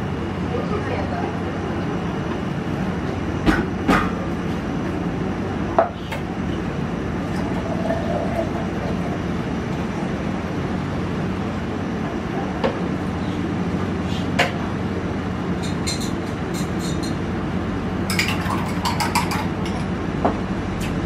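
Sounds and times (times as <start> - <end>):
kitchen mechanical hum: 0.0 - 21.0
containers and utensils knocking: 18.1 - 19.9.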